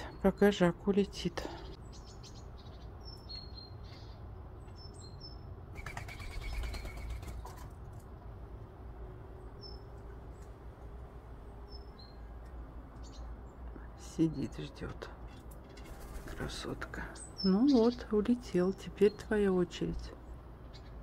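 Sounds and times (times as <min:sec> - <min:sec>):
small birds chirping: 0:00.0 - 0:07.9, 0:09.4 - 0:21.0
wings fluttering: 0:05.7 - 0:08.1, 0:15.4 - 0:16.7.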